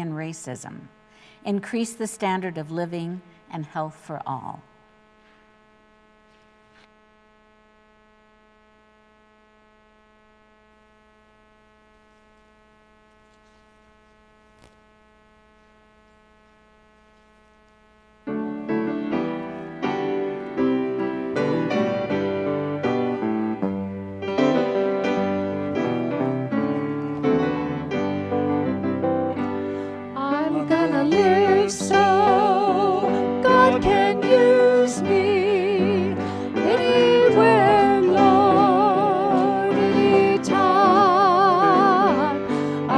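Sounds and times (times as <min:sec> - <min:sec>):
faint electrical hum: 0:00.0 - 0:42.9
piano playing chords: 0:18.3 - 0:42.9.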